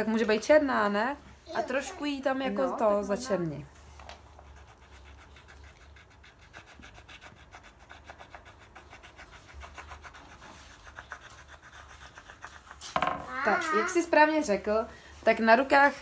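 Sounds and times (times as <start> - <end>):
pencil scribbling on paper: 4.2 - 14.4.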